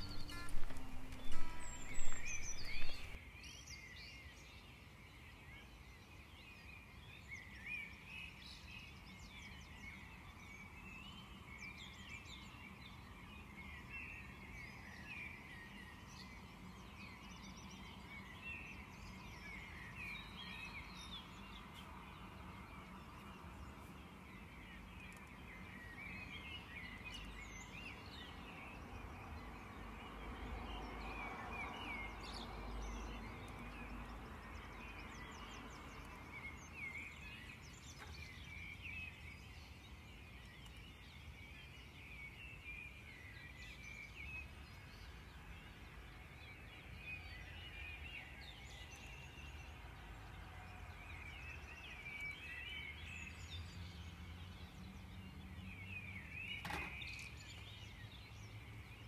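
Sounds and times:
low background hiss: 0.0 - 3.2.

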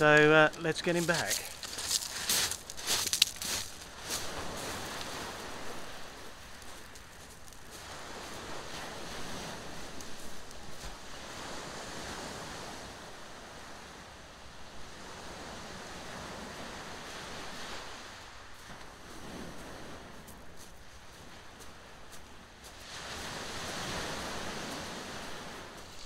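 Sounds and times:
footsteps crunching on pebbles: 0.0 - 5.2, 6.4 - 8.0
waves washing up shingle beach: 0.0 - 14.1, 14.7 - 26.0.

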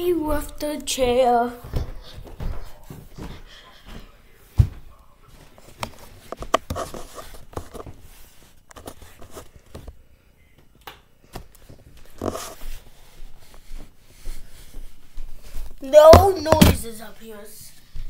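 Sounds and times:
footsteps on stairs: 0.0 - 6.6, 11.4 - 17.1.

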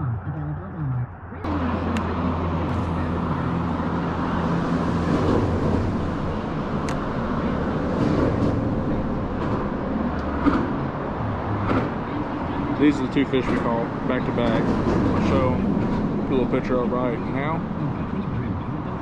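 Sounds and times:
traffic rumble on bridge: 0.0 - 19.0.

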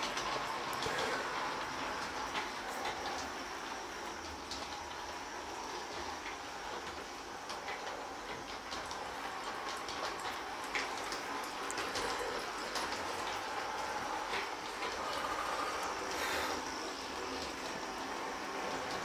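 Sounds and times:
wheels clicking over rail joints: 0.0 - 15.2
model train rolling hiss: 0.0 - 19.0.

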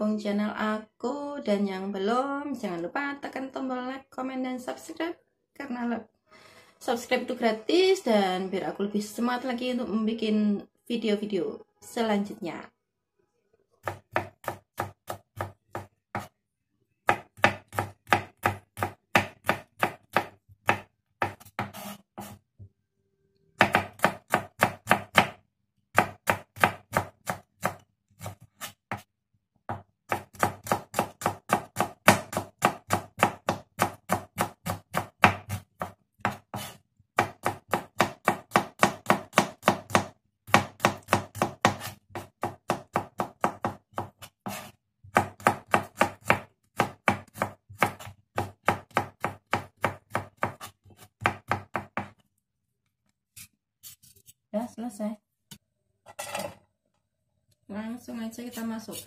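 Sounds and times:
knife chopping on wooden board: 13.8 - 16.3, 17.1 - 22.4, 23.6 - 29.0, 29.7 - 52.2.

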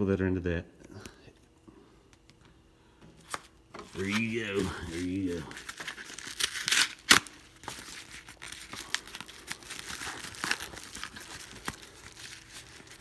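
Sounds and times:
bubble mailer crinkling and rustling: 3.3 - 13.0.

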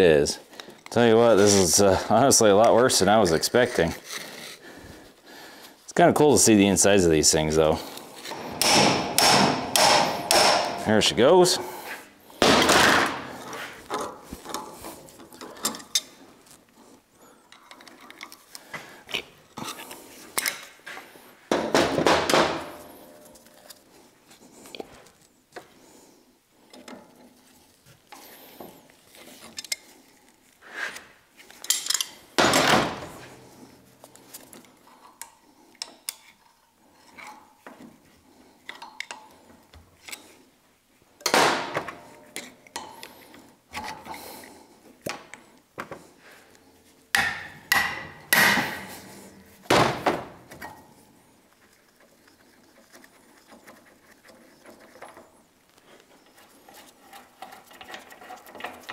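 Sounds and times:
loud metal clanks: 8.3 - 10.9
steel tools clinking and scraping: 31.4 - 32.3.

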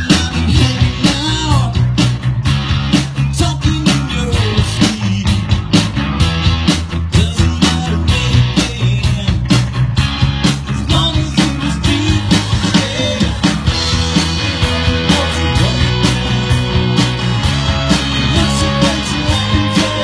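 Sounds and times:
drums keeping a steady beat: 0.0 - 20.0
electric guitars: 0.0 - 20.0
live rock band playing: 0.0 - 20.0.

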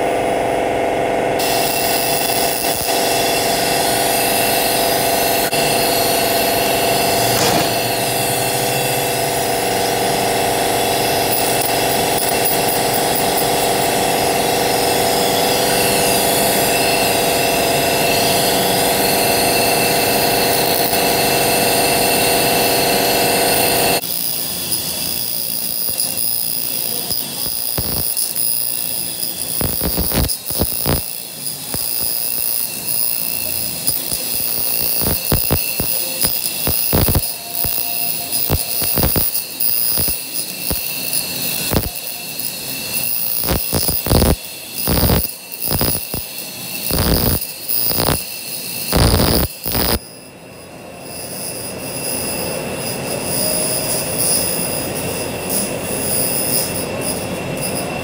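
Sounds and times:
machine hum with high whine: 0.0 - 58.0
laser crackling and snapping: 27.1 - 28.7, 29.6 - 31.1, 34.2 - 37.8, 38.4 - 41.9, 43.0 - 46.3, 46.9 - 48.2, 48.9 - 50.0.

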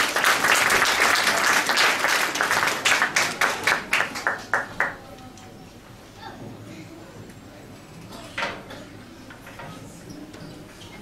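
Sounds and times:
hands clapping: 0.0 - 5.0.

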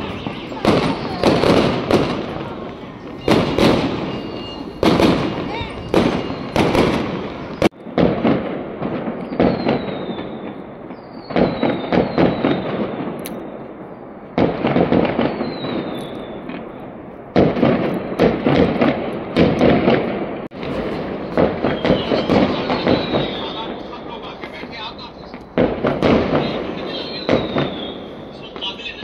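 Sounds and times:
fireworks bangs and crackling: 0.0 - 29.0
high falling whistles: 3.0 - 6.8, 21.6 - 23.7, 26.9 - 28.5.

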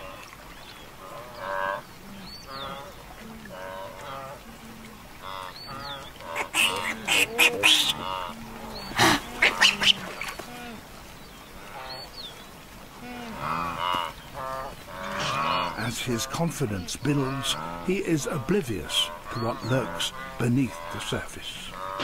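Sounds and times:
wildebeest honking grunts: 5.2 - 10.8, 13.2 - 22.0.

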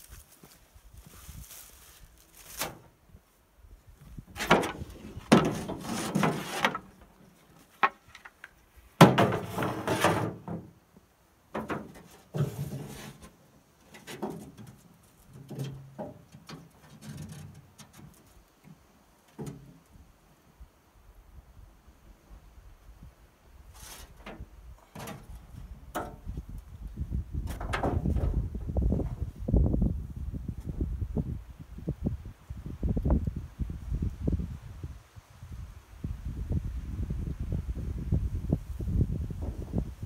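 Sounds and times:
rustling and scraping: 0.0 - 3.0, 4.0 - 10.8, 11.5 - 19.8, 23.7 - 26.7, 27.4 - 29.4.

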